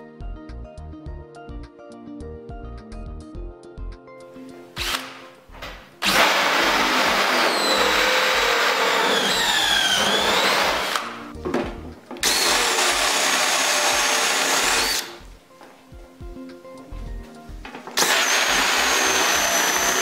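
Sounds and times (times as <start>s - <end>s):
background music: 0.0s - 20.0s
cordless drill whine: 6.0s - 11.1s, 12.2s - 15.2s, 18.0s - 20.0s.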